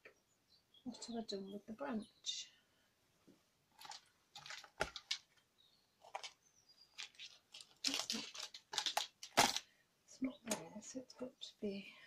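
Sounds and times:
paper rustling and shuffling: 0:03.8 - 0:05.4, 0:06.0 - 0:09.6.

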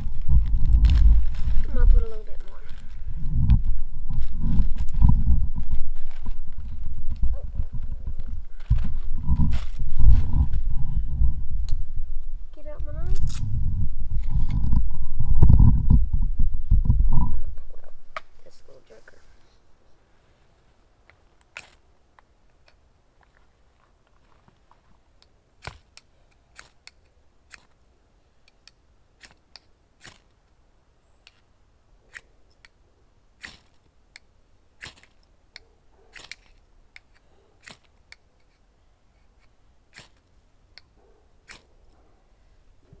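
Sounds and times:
twigs snapping and crackling: 0:00.0 - 0:10.4, 0:13.1 - 0:13.5, 0:21.0 - 0:27.8, 0:28.5 - 0:30.4, 0:33.4 - 0:35.4, 0:36.1 - 0:38.2, 0:39.4 - 0:41.7.

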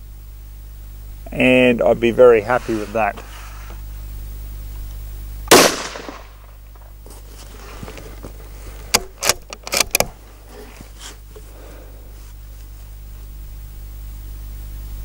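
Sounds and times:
rifle shot: 0:05.5 - 0:06.5
rifle bolt clicking: 0:09.0 - 0:10.1.

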